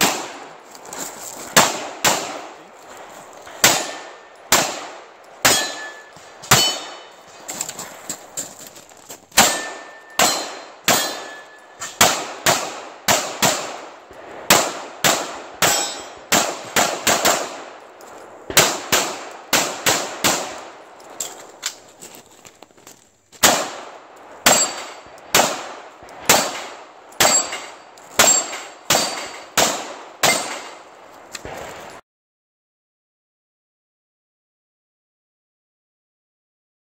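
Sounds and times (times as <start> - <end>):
pistol shots: 0.0 - 0.6, 1.5 - 2.9, 3.5 - 7.3, 9.3 - 21.6, 23.4 - 32.0
steel target ringing: 3.6 - 4.6, 5.4 - 7.2, 9.4 - 12.1, 15.6 - 16.3, 24.4 - 25.1, 26.4 - 29.6.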